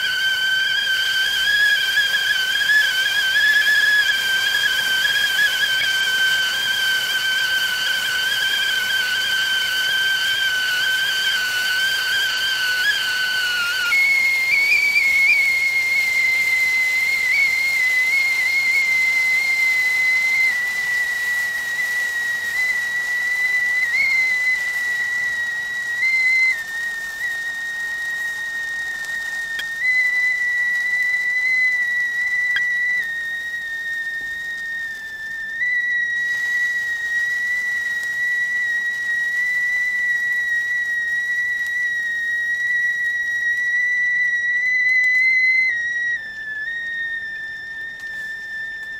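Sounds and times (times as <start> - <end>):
faint steam hiss: 0.0 - 48.9
kettle whistling: 0.0 - 48.9.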